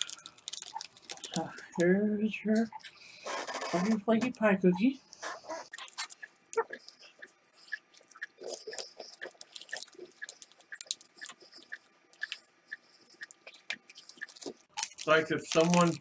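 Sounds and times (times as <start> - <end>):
crunching and chewing cookie: 0.0 - 1.9, 5.7 - 16.0.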